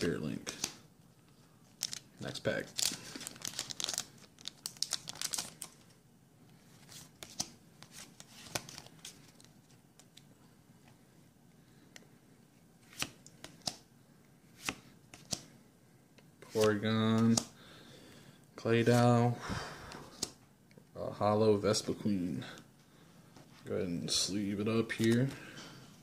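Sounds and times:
foil wrapper crackling and tearing: 0:02.7 - 0:05.8
cards being flicked: 0:12.9 - 0:13.8, 0:14.6 - 0:15.5, 0:16.5 - 0:17.5, 0:20.1 - 0:20.4.

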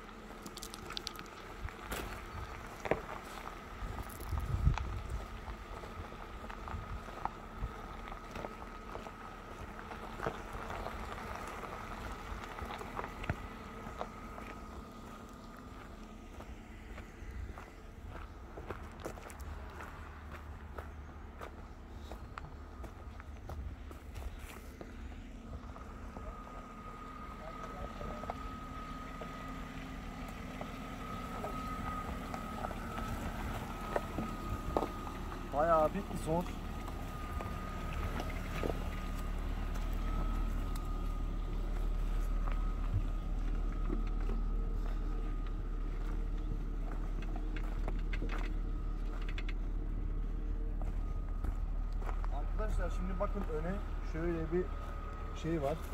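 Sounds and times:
car engine rumbling: 0:00.0 - 0:55.9
knocks and clicks from rough ground: 0:00.4 - 0:03.3, 0:45.4 - 0:50.2
faint high whine: 0:21.9 - 0:55.9.

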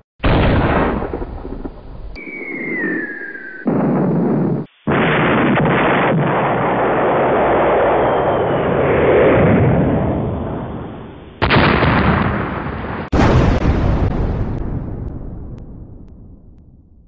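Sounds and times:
bomb explosion: 0:00.2 - 0:17.0
falling bomb whistle: 0:02.2 - 0:04.7.

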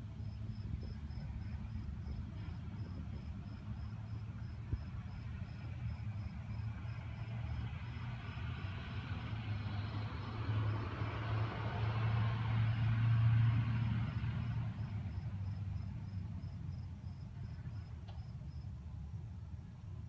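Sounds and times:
steady low hum: 0:00.0 - 0:10.9
vehicle passing: 0:00.0 - 0:17.9
crickets chirping: 0:00.0 - 0:18.8.

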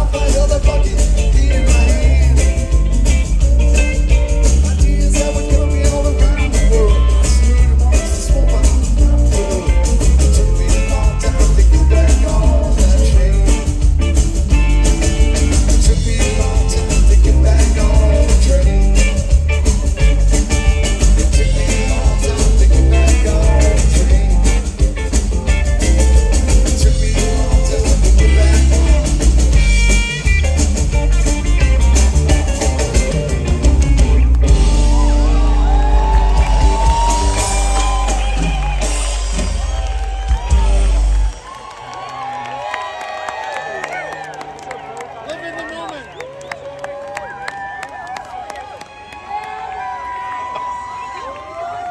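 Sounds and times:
electric guitar: 0:00.0 - 0:41.4
drum kit: 0:00.0 - 0:41.5
live rock band playing: 0:00.0 - 0:41.5.

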